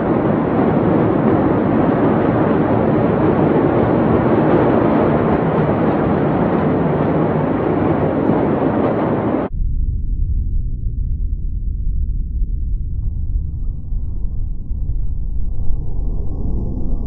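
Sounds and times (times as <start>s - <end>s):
loud rushing noise: 0.0s - 9.6s.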